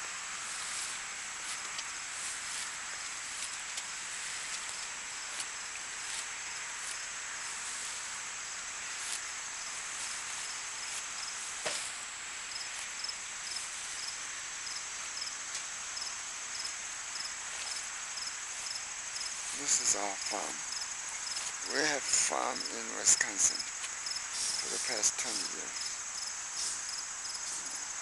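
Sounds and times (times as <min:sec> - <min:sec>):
crickets pulsed chirping: 0:00.0 - 0:28.0
insects trilling: 0:00.0 - 0:28.0.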